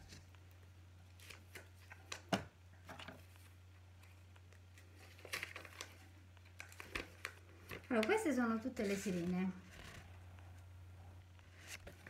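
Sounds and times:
faint low hum: 0:00.0 - 0:12.0
packaging clicks and rustles: 0:01.1 - 0:10.0.

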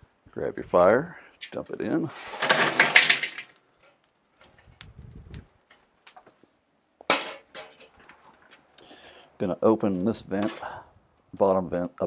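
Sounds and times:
charcoal pouring rattling clatter: 0:01.5 - 0:03.6, 0:07.1 - 0:08.3.

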